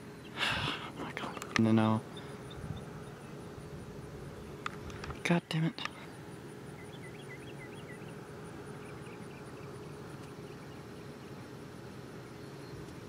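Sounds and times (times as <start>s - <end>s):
insects pulsing song: 0.0s - 13.0s.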